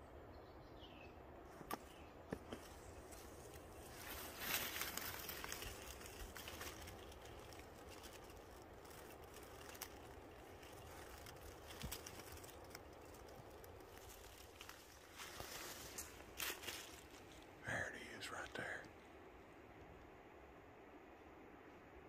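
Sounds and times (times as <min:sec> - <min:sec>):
soft rustling: 0:01.5 - 0:17.6.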